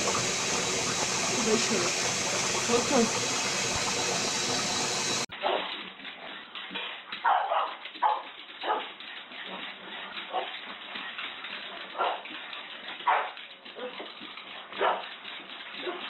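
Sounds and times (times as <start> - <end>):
steady hiss: 0.0 - 5.3
small dog barking: 7.2 - 8.9.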